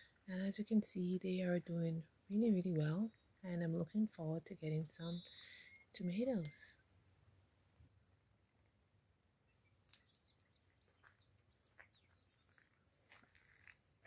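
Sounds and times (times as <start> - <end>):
faint bird chirps: 4.8 - 7.0, 7.8 - 12.8.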